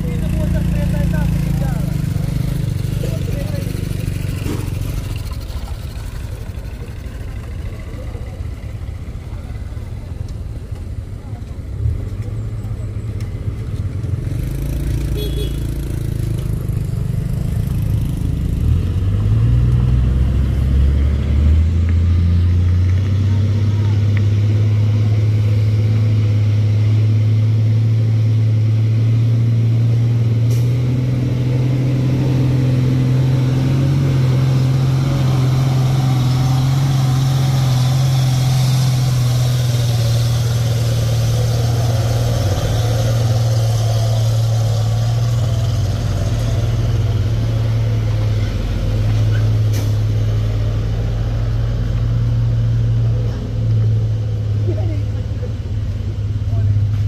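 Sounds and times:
tyres on gravel: 0:00.0 - 0:14.6
diesel truck engines droning: 0:00.0 - 0:57.0.

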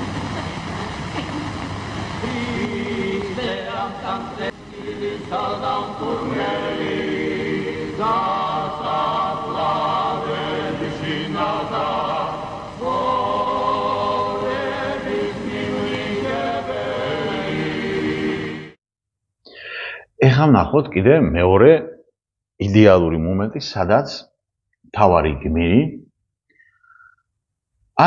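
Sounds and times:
choir chanting held chords: 0:02.1 - 0:18.8.

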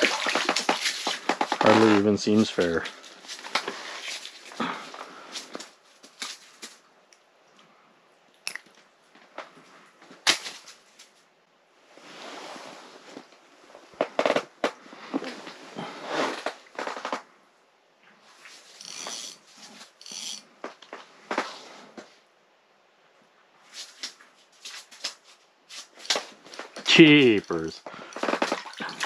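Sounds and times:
crunching slush: 0:00.0 - 0:06.7.

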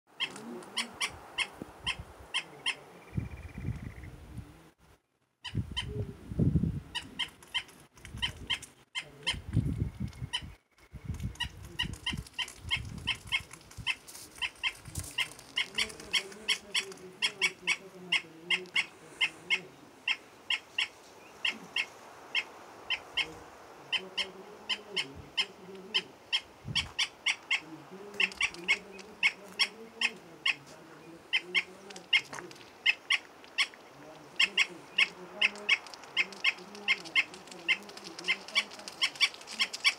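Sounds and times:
wind rumble on microphone: 0:01.0 - 0:02.3, 0:03.1 - 0:04.7, 0:05.5 - 0:07.4, 0:08.0 - 0:08.6, 0:09.2 - 0:16.1, 0:26.5 - 0:27.0
bird calling sharp notes: 0:10.2 - 0:39.9.

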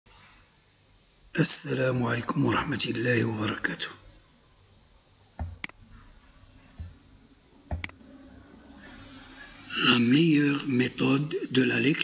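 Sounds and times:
faint steady hiss: 0:00.1 - 0:12.0
computer mouse button clicks: 0:05.4 - 0:05.8, 0:07.7 - 0:08.0.

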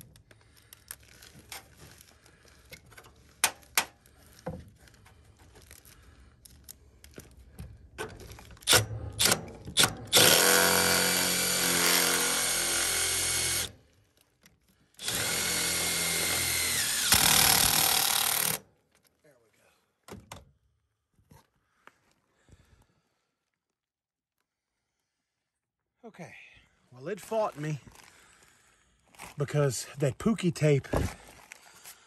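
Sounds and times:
cordless drill driving screws: 0:08.6 - 0:13.7, 0:15.0 - 0:18.6.

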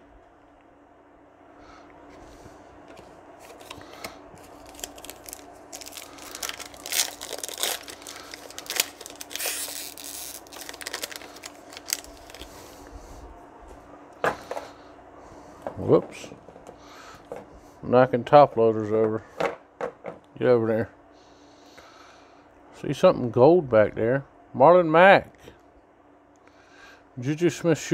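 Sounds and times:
foil wrapper crinkling: 0:03.4 - 0:12.7.

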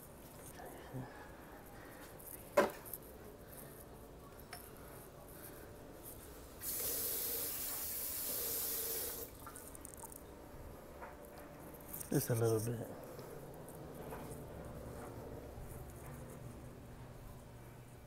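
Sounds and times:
faucet filling a plastic bottle: 0:06.6 - 0:09.6.

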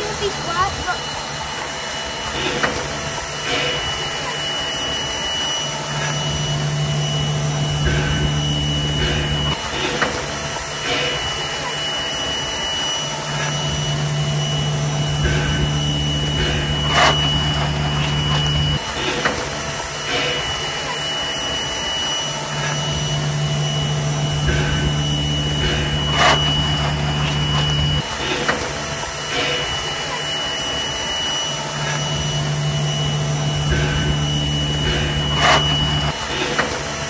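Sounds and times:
constant high whine: 0:00.0 - 0:37.0
steam locomotive hissing steam: 0:00.0 - 0:37.0
low hum: 0:05.8 - 0:11.3, 0:13.6 - 0:19.5, 0:22.5 - 0:30.0, 0:31.7 - 0:37.0.

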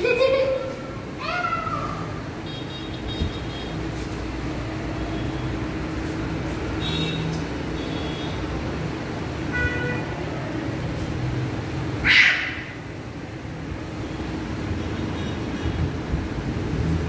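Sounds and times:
faint high voices: 0:00.0 - 0:02.2.

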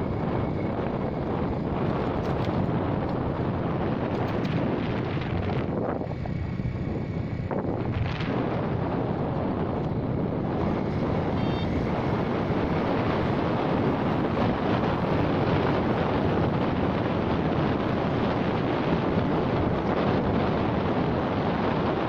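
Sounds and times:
wind rushing over microphone: 0:00.0 - 0:22.0.

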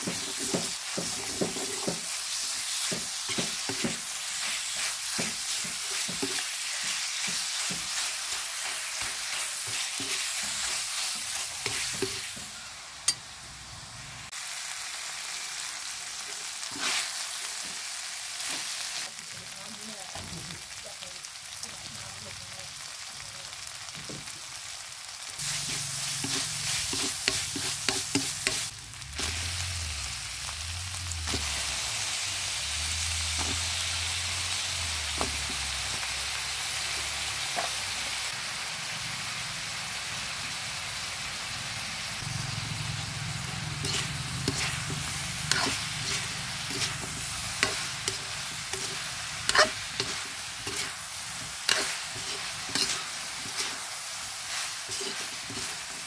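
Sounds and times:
spatula scraping a pan: 0:00.0 - 0:12.5, 0:25.4 - 0:28.7, 0:43.8 - 0:56.0
food sizzling in a wok: 0:00.0 - 0:56.0.

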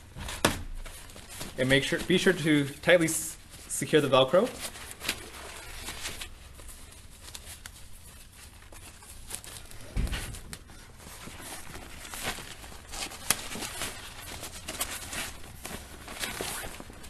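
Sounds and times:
fabric rustling: 0:00.0 - 0:17.0
dull thump: 0:09.8 - 0:10.5.

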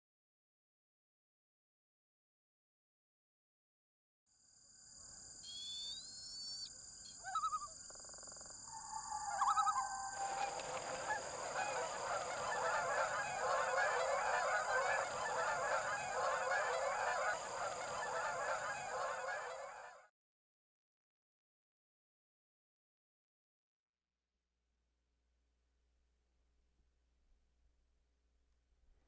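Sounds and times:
bird calls: 0:05.4 - 0:20.0
flock of birds calling: 0:05.5 - 0:20.0.

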